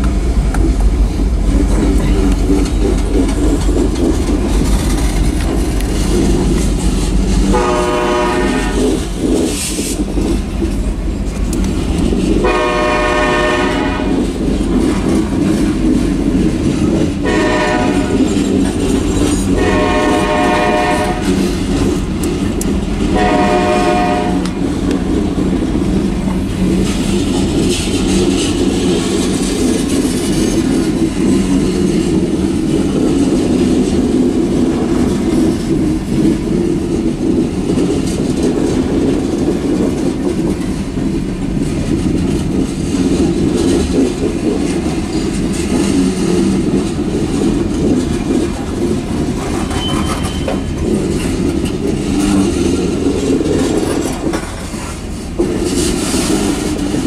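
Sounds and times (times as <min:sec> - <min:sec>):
freight train wheels on rail: 0:00.0 - 0:57.0.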